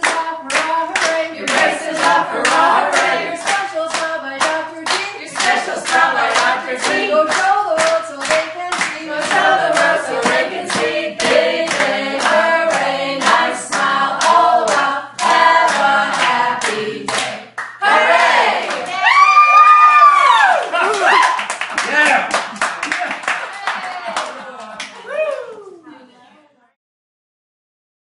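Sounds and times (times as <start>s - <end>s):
group of people singing a cheer: 0.0s - 19.2s
people clapping in a steady beat: 0.0s - 25.5s.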